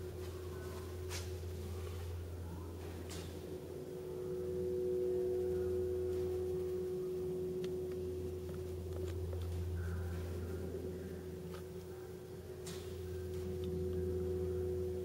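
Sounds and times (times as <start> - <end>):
constant low hum: 0.0 - 15.0
pure ringing tone: 0.0 - 15.0.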